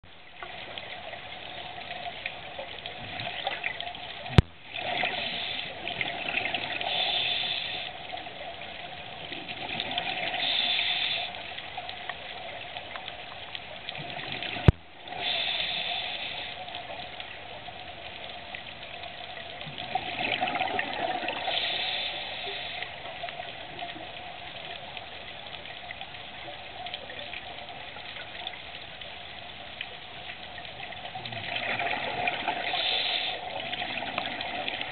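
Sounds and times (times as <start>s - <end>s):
bubbling exhaled air underwater: 2.8s - 7.8s, 9.2s - 11.3s, 13.9s - 16.5s, 19.6s - 22.8s, 30.8s - 34.9s.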